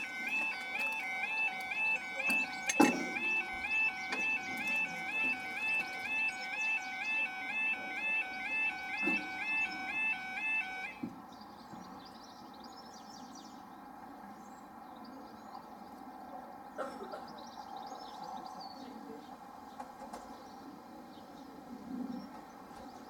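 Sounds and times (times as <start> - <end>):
level crossing alarm warble: 0.0 - 11.0
small birds chirping: 0.0 - 13.8.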